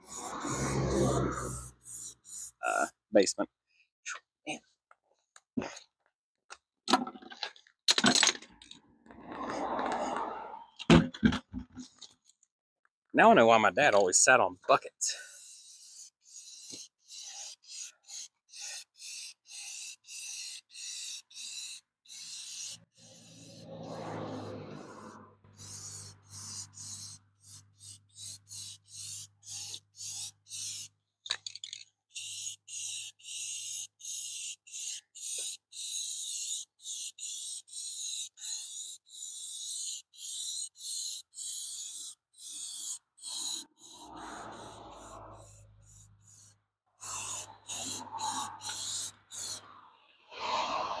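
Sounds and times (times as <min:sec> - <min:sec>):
spray paint can hissing: 0:00.0 - 0:02.9, 0:15.2 - 0:49.7.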